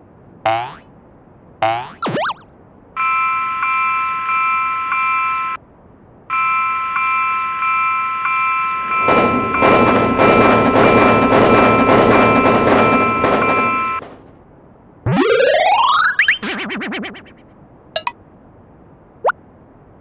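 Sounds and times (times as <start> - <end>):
railroad crossing bell ringing: 3.0 - 5.6, 6.3 - 14.0
train clattering past: 7.2 - 14.4.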